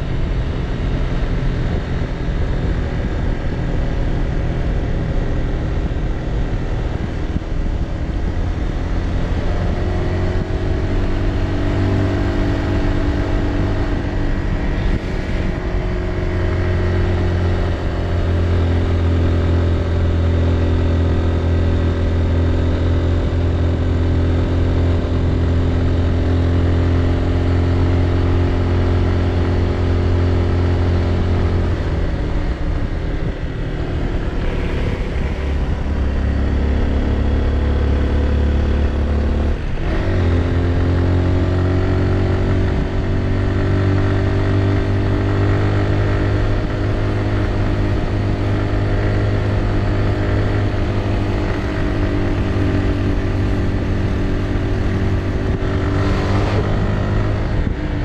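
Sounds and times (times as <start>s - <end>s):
wind rush over microphone: 0.0s - 19.0s, 31.4s - 40.8s, 41.4s - 58.0s.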